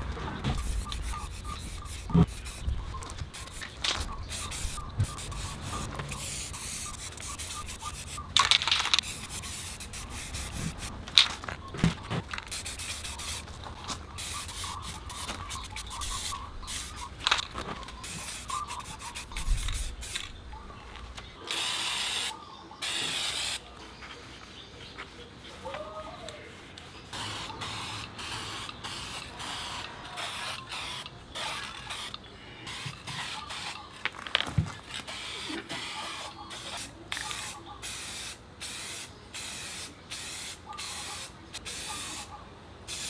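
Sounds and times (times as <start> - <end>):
aerosol spray hissing: 0.6 - 8.3, 9.0 - 10.9, 12.4 - 13.5, 14.2 - 17.2, 18.0 - 20.2, 21.5 - 23.6.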